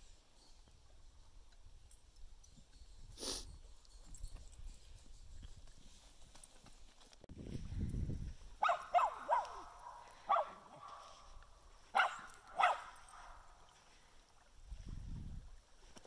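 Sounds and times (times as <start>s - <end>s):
small dog barking: 8.6s - 13.6s.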